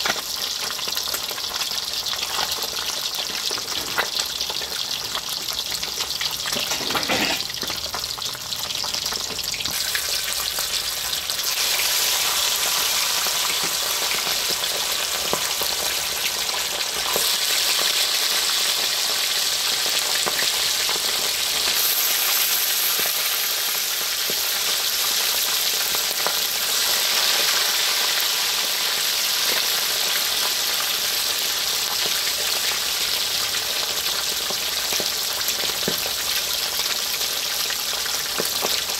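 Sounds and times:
fish deep-frying in oil: 0:00.0 - 0:38.9.

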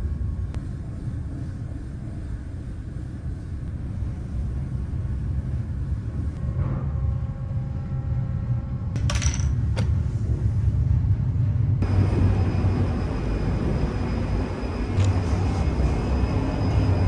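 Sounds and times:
rushing wind on open deck: 0:09.7 - 0:17.0
ship engines rumbling: 0:10.0 - 0:17.0.

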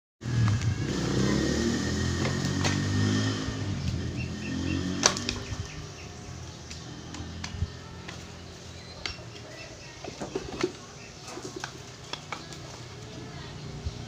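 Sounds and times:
low motor drone: 0:00.2 - 0:09.4.

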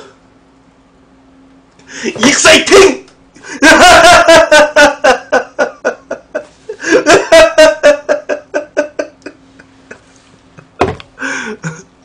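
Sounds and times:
man laughing: 0:03.4 - 0:12.0.

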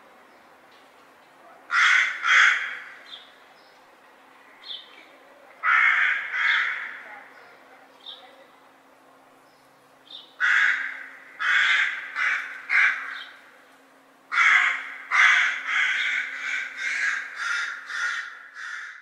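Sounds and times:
crows and magpies cawing: 0:01.7 - 0:03.3, 0:05.6 - 0:07.4, 0:10.2 - 0:13.6, 0:14.3 - 0:19.0.

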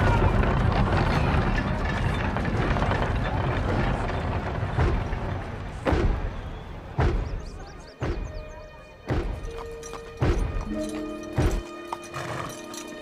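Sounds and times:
booming hits: 0:02.2 - 0:08.4.

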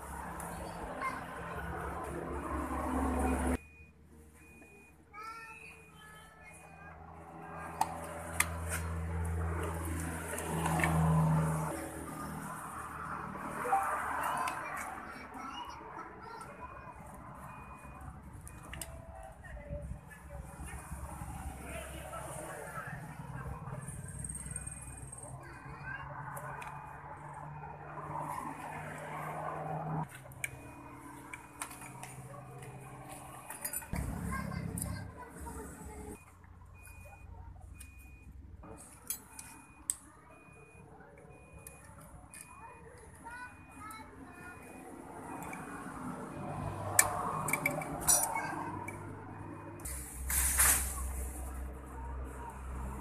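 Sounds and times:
metal tools clinking: 0:33.4 - 0:34.0, 0:47.4 - 0:48.5.

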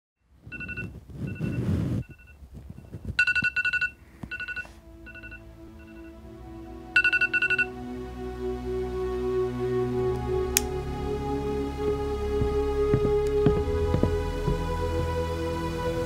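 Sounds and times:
rustling noise: 0:00.4 - 0:04.9
smartphone alarm beeping: 0:00.5 - 0:06.1, 0:07.0 - 0:07.7
soft background music: 0:02.8 - 0:16.0.

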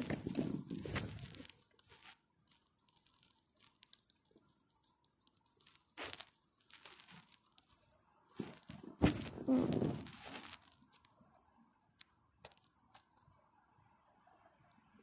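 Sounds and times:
bedding rustling against microphone: 0:00.0 - 0:03.4, 0:04.2 - 0:11.0.

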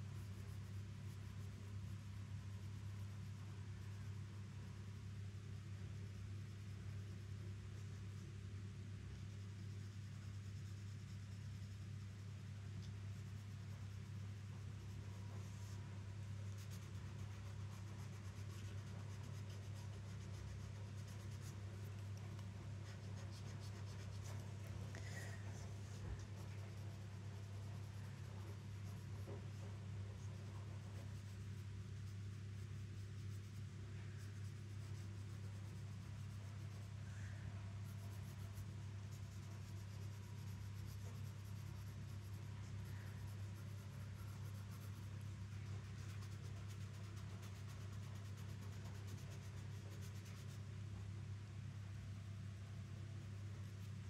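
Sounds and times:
pencil scratching on paper: 0:09.2 - 0:37.0, 0:37.7 - 0:50.6.

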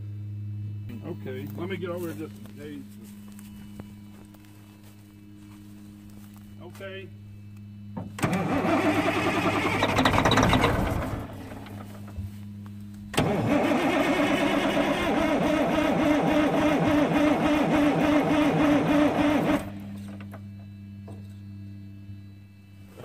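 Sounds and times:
diesel engine cranking: 0:07.9 - 0:12.4, 0:13.0 - 0:20.4.

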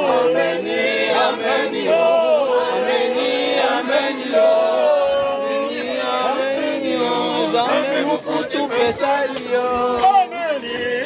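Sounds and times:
men singing a cappella: 0:00.0 - 0:11.0
people talking: 0:03.6 - 0:11.0.

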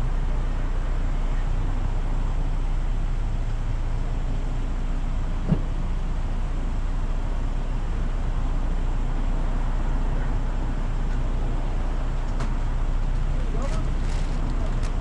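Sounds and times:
vehicle engine idling: 0:00.0 - 0:15.0
short low thump: 0:05.4 - 0:05.8.

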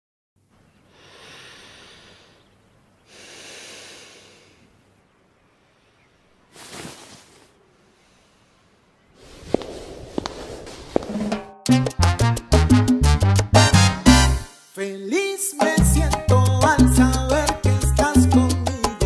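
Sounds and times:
person breathing slowly: 0:00.9 - 0:02.5, 0:03.1 - 0:04.7, 0:05.7 - 0:11.0.

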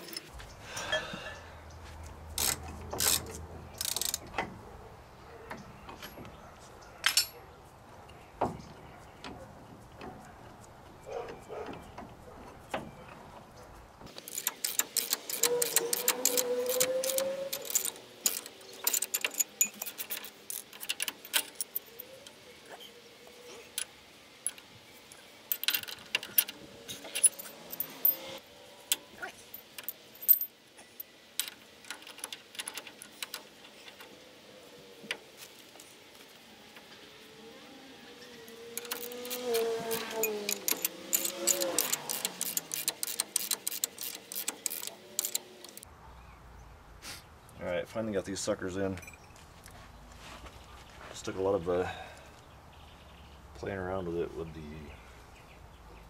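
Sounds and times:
metal tools clinking and clattering: 0:00.0 - 0:01.4, 0:14.2 - 0:22.3, 0:23.5 - 0:28.4, 0:38.7 - 0:45.8, 0:49.0 - 0:49.4.

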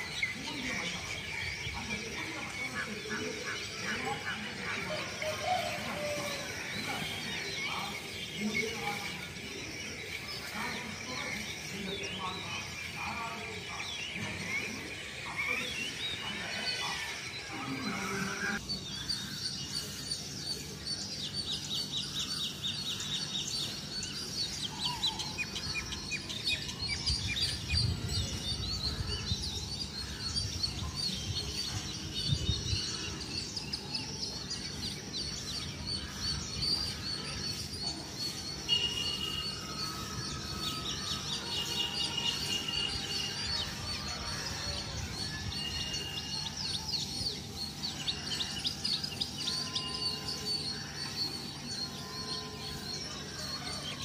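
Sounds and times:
small birds chirping: 0:00.0 - 0:54.0
bird whistled notes: 0:38.5 - 0:43.6.

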